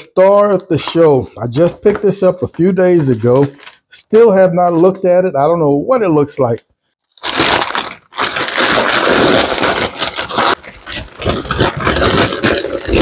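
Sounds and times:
paper crinkling and tearing: 0:00.4 - 0:03.8, 0:07.1 - 0:13.0.

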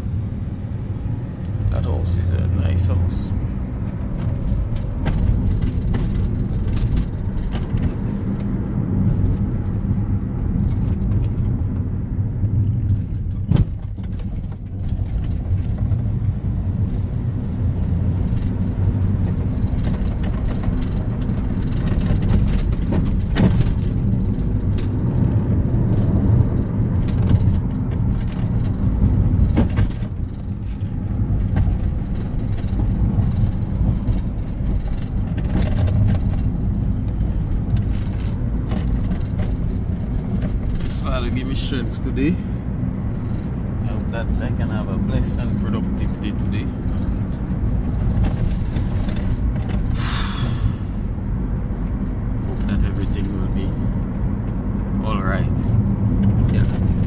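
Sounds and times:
engine and tyre rumble in car: 0:00.0 - 0:57.0.

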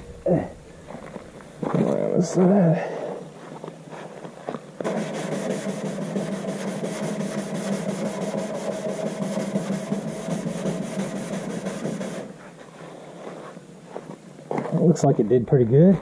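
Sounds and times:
scrub pad rubbing a post: 0:04.8 - 0:13.6.

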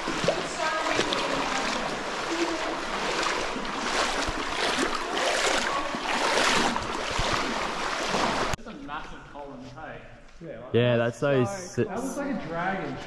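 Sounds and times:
water splashing from wading: 0:00.0 - 0:08.6.

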